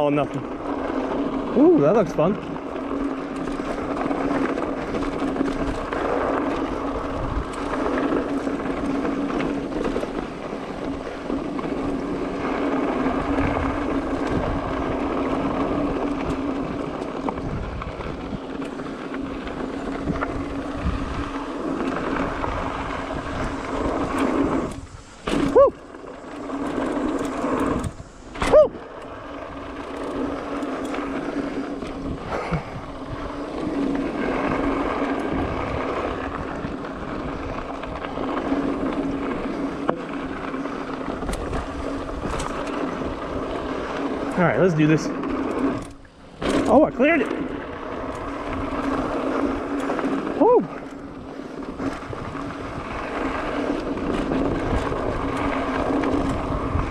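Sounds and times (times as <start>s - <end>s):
bike rattling: 0.0s - 56.9s
bike tyres on loose dirt: 0.0s - 56.9s
wind on microphone: 3.6s - 8.6s, 12.4s - 18.6s, 19.8s - 25.9s, 26.6s - 29.8s, 31.4s - 39.9s, 45.6s - 56.9s.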